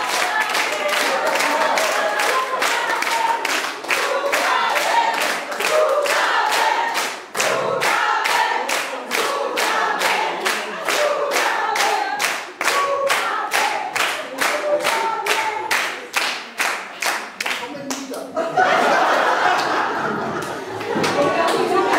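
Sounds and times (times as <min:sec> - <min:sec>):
group of voices singing: 0:00.0 - 0:16.2
audience clapping in time: 0:00.0 - 0:18.2.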